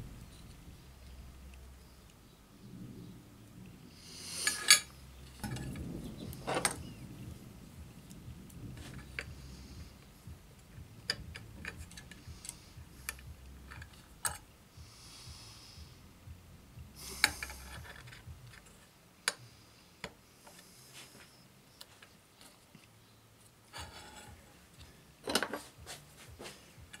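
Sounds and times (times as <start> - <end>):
short scraping rub: 23.8 - 24.4.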